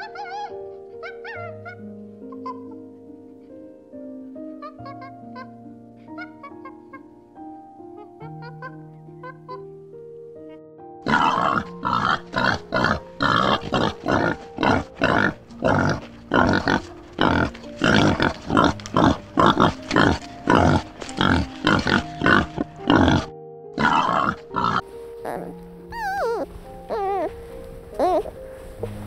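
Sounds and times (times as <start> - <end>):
background music: 0.0 - 29.0
warthogs grunting: 11.0 - 24.8.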